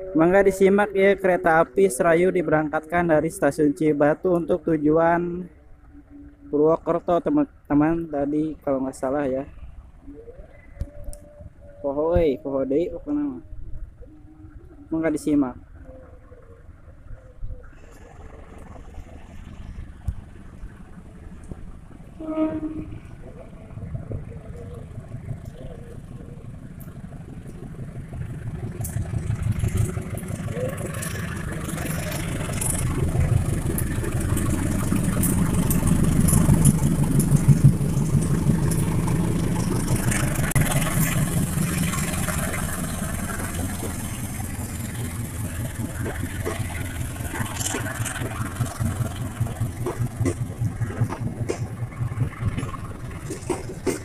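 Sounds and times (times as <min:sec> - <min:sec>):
diesel locomotive engine: 0:00.0 - 0:54.0
train wheels clacking on rail joints: 0:18.0 - 0:54.0.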